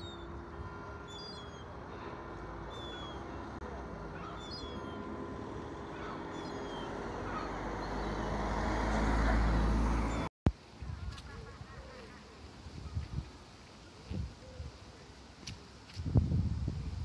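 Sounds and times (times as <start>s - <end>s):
waterbird calls: 0.0s - 8.6s
vehicle engine rumble passing: 0.0s - 10.3s
traffic hum: 0.0s - 16.2s.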